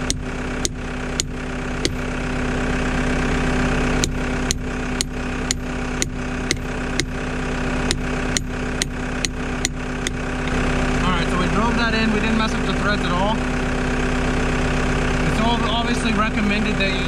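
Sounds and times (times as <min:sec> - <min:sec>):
diesel engine idling: 0:00.0 - 0:17.0
hammer striking steel pin: 0:04.0 - 0:07.2, 0:07.9 - 0:10.2.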